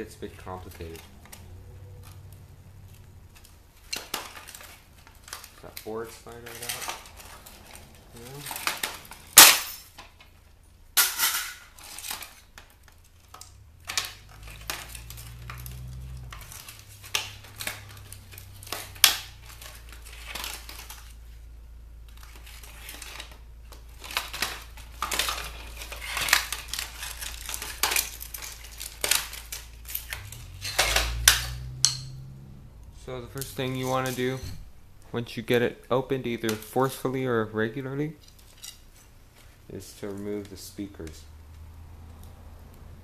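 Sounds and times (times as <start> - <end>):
plastic case cracking apart: 12.0 - 21.2, 22.1 - 31.4.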